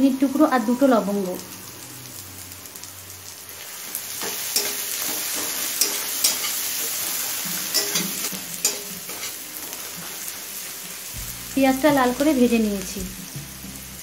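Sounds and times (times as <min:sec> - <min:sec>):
onions sizzling in hot oil: 0:00.0 - 0:14.0
metal spatula scraping pan: 0:04.2 - 0:10.3.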